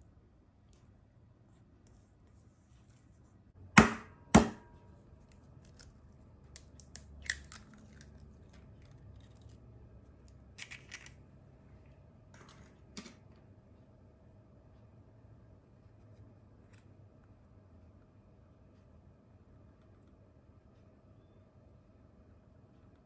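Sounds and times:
egg knocking on hard edge: 0:03.8 - 0:04.6.

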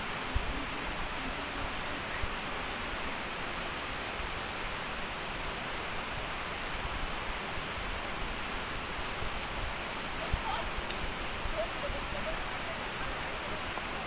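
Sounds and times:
waterfall rushing: 0:00.0 - 0:14.0
faint voices: 0:10.1 - 0:14.0.

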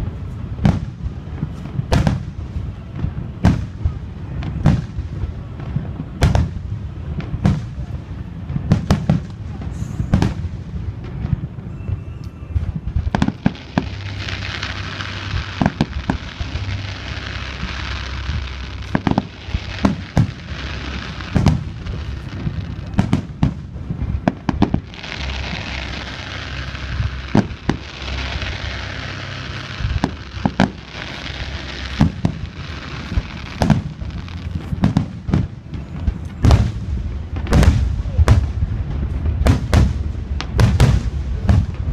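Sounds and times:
fireworks booms and bangs: 0:00.0 - 0:41.9
low rumble: 0:00.0 - 0:41.9
high hiss: 0:12.0 - 0:38.2.

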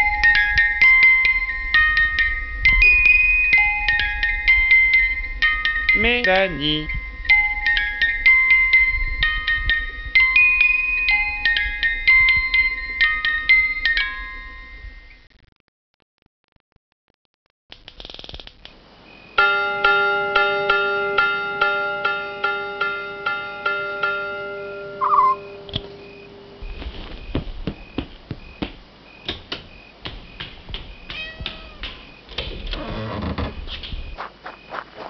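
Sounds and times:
repeated chiming struck note: 0:19.4 - 0:26.6
irregular clicks and knocks: 0:27.2 - 0:34.2
cat meowing: 0:31.1 - 0:31.9.

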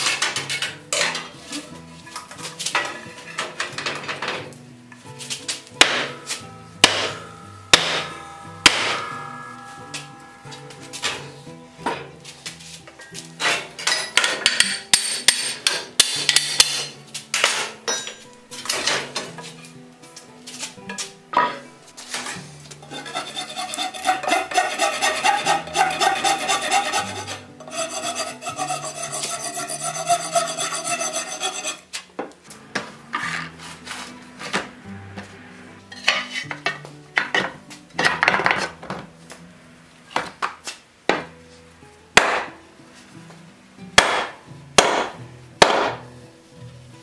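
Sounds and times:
rubbing strokes on wood: 0:22.8 - 0:31.8
file scraping wood: 0:22.8 - 0:31.9.

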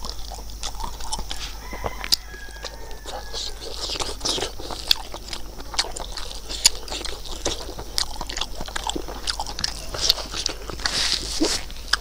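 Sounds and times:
man chewing food: 0:00.0 - 0:12.0
wet mouth clicks: 0:00.0 - 0:12.0.

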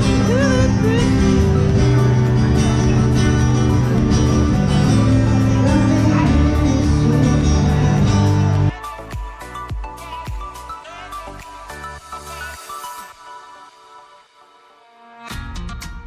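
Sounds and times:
guitar music: 0:00.0 - 0:09.0.

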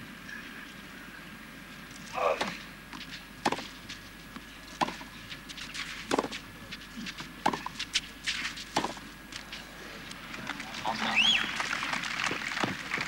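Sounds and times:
tennis ball struck by rackets: 0:03.4 - 0:03.7, 0:04.8 - 0:05.1, 0:06.1 - 0:06.4, 0:07.4 - 0:09.0.

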